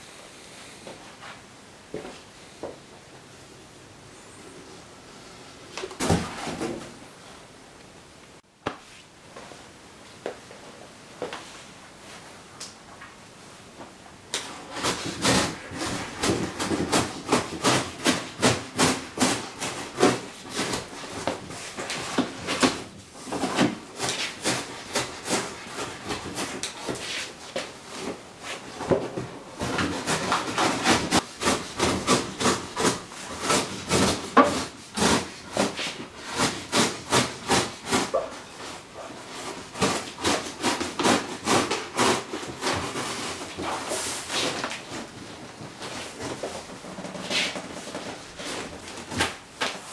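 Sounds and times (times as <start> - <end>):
cardboard rubbing and scraping: 14.4 - 28.7, 29.6 - 49.4.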